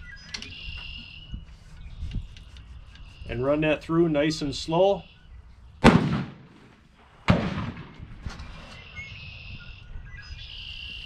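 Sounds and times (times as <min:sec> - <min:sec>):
gunshots with echo: 0:05.8 - 0:06.7, 0:07.3 - 0:08.1.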